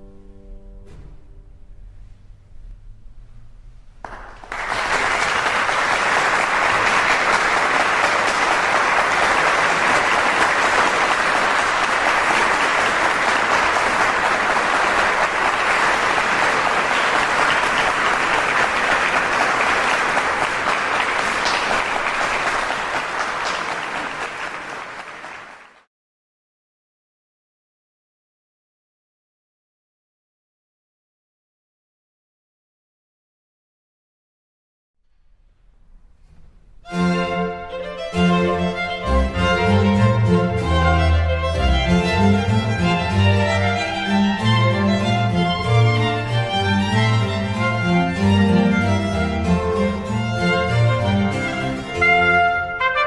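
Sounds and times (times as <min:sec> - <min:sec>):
audience applauding: 0:04.0 - 0:25.9.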